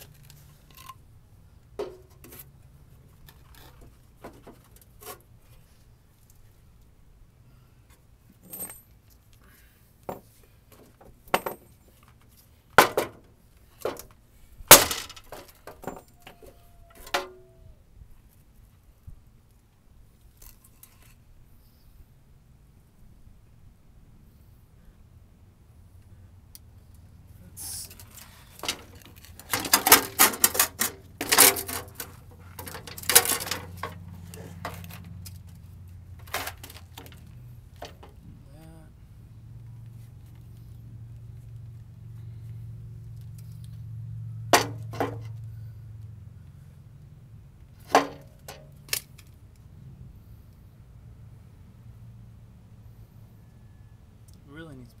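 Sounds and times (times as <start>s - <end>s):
steel bumper and board knocking: 1.8s - 2.4s, 44.5s - 45.3s
steel bumper clanking: 1.8s - 2.5s, 14.7s - 17.6s, 27.9s - 35.5s, 44.4s - 45.4s, 47.8s - 49.0s.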